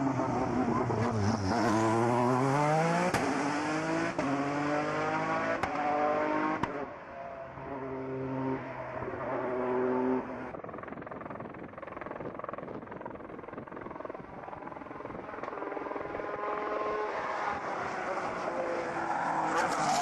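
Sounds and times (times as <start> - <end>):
race car engine at high revs: 0.0 - 10.8, 14.8 - 20.0.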